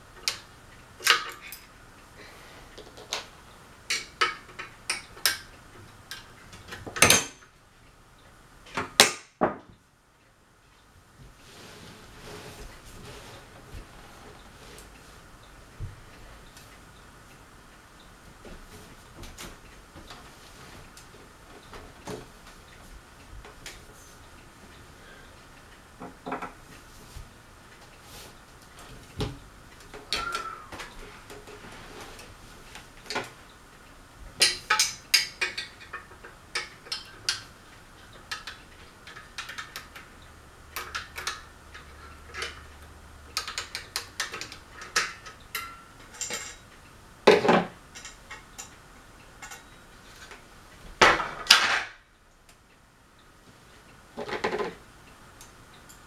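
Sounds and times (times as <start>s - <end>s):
metal fan parts clinking: 0.0s - 1.8s, 3.9s - 7.5s, 34.4s - 40.1s, 40.7s - 50.4s.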